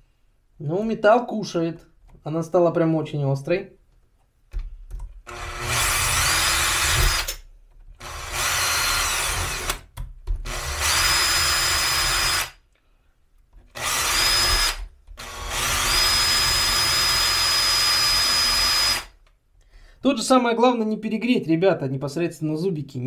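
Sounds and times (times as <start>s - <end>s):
drill grinding chainsaw chain: 5.3s - 7.4s, 8.0s - 9.8s, 10.4s - 12.6s, 13.7s - 19.2s.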